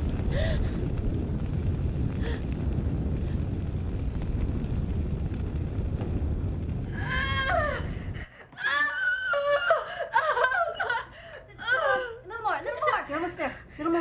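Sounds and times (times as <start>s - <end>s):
woman screaming in pain: 7.0s - 7.9s, 8.6s - 11.0s, 11.6s - 12.2s.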